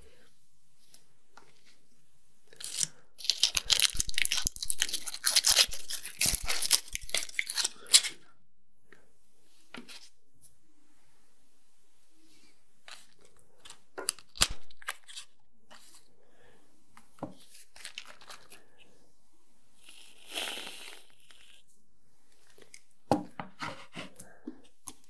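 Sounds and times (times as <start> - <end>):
foil wrapper crinkling: 2.6 - 8.1, 17.8 - 18.6.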